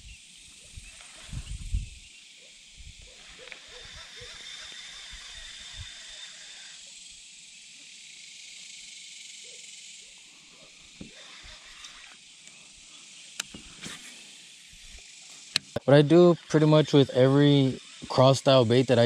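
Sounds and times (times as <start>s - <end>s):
high-pitched outdoor hiss: 0.0s - 19.0s
sharp ticks: 14.9s - 19.0s.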